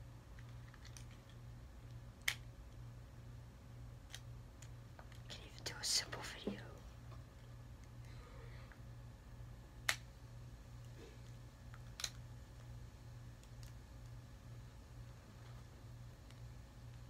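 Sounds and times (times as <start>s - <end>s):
plastic toy parts handled: 0.3s - 1.4s
sharp plastic clicks: 0.4s - 2.5s, 11.7s - 12.2s.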